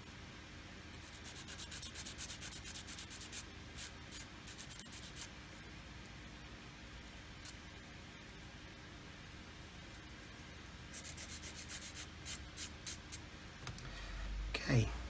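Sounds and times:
tweezers scratching and ticking: 0:01.0 - 0:05.3.

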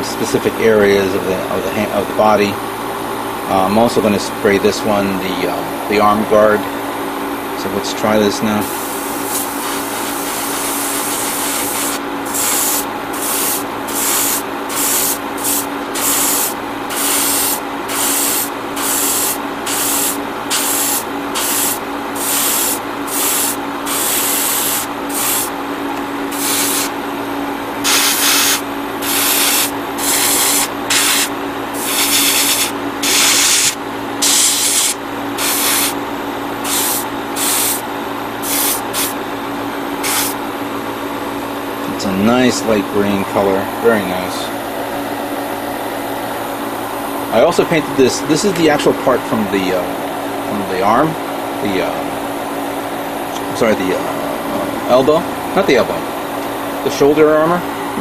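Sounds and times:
steady hum: 0:00.0 - 0:58.0
airbrush spraying hiss: 0:08.6 - 0:25.5, 0:26.3 - 0:27.0, 0:27.8 - 0:36.0, 0:36.6 - 0:37.8, 0:38.4 - 0:39.2, 0:40.0 - 0:40.4.

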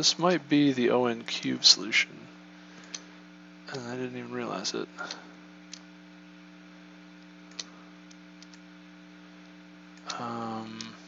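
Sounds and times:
steady electrical hum: 0:00.0 - 0:11.0
computer mouse clicks: 0:07.5 - 0:08.6.

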